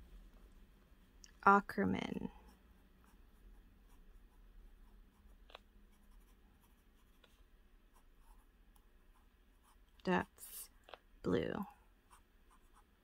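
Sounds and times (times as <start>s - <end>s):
pen nib scratching on paper: 2.3s - 11.0s, 12.0s - 13.0s.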